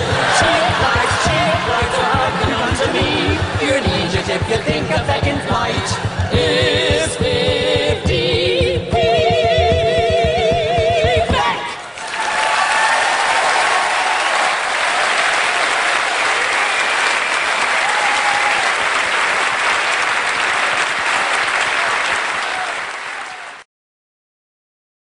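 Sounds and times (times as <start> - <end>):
audience applause: 0.0 - 5.1, 11.8 - 23.6.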